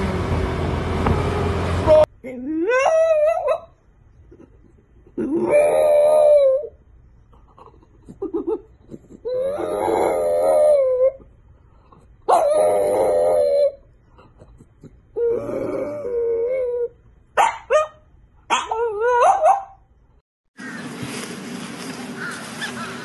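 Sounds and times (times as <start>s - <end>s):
dog howling: 5.4s - 6.7s, 9.3s - 11.2s, 12.3s - 13.8s.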